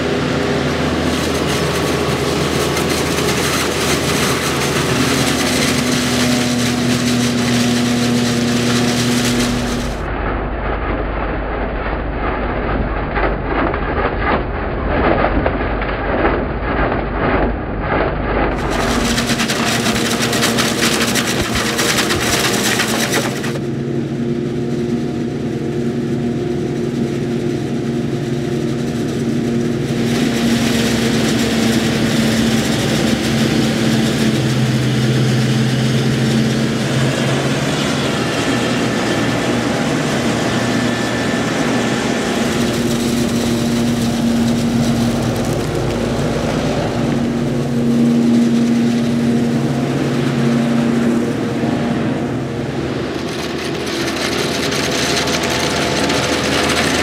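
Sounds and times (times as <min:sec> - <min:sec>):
forage harvester chopping maize: 0:00.0 - 0:10.1, 0:16.2 - 0:23.7, 0:29.8 - 0:48.0, 0:53.1 - 0:57.0.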